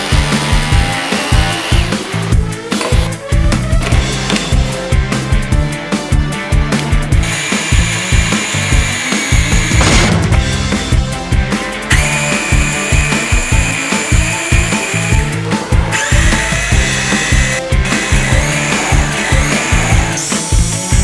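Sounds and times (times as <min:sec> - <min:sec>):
background music with steady beat: 0:00.0 - 0:21.0
rotary hammer motor whining: 0:07.2 - 0:10.0, 0:11.9 - 0:20.4.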